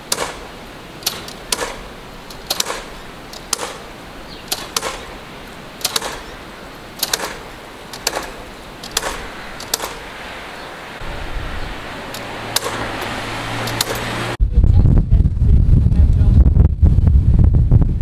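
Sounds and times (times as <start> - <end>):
nail guns firing: 0.0 - 10.1, 12.1 - 14.1
steady background hiss: 0.0 - 14.4.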